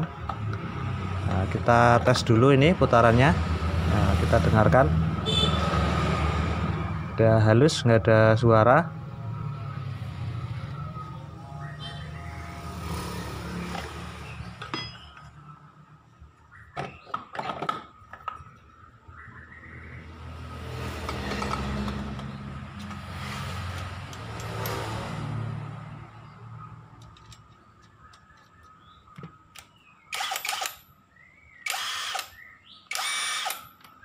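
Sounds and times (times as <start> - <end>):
sharp clinks: 14.4 - 15.4, 24.0 - 25.2.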